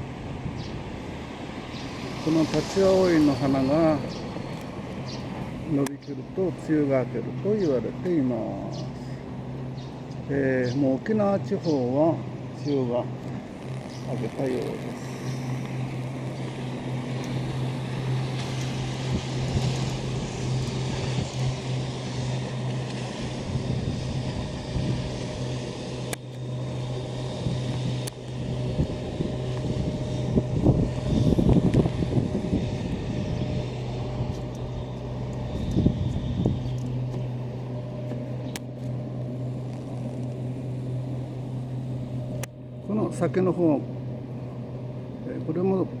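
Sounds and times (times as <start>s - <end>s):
low motor drone: 0.0s - 46.0s
wind rumbling on microphone: 13.4s - 38.6s.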